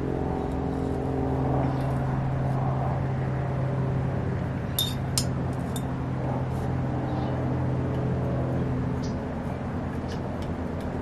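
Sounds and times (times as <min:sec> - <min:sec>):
steady low hum: 0:00.0 - 0:11.0
metal tool clinking glass jar: 0:04.8 - 0:05.0.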